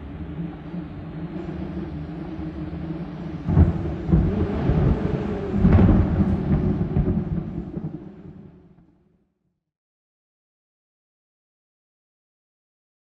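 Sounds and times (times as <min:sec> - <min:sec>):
low drone: 0:00.0 - 0:08.6
deep thunder-like rumbles: 0:00.1 - 0:08.8.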